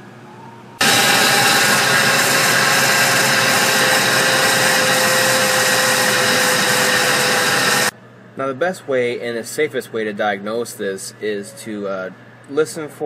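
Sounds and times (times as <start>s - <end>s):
engine running: 0.8s - 7.9s.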